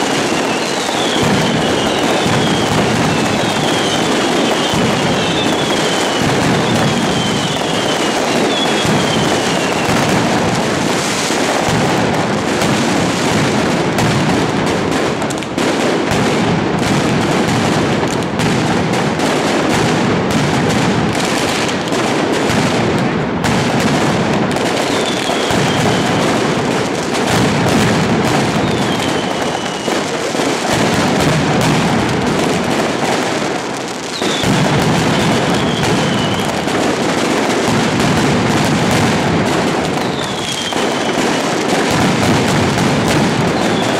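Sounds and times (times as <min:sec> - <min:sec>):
firecrackers banging: 0:00.0 - 0:43.9
short falling whistles: 0:40.1 - 0:41.1.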